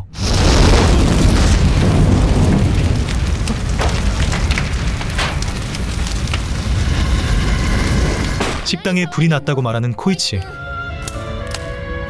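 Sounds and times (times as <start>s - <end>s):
fire blazing with crackles: 0.0s - 8.8s.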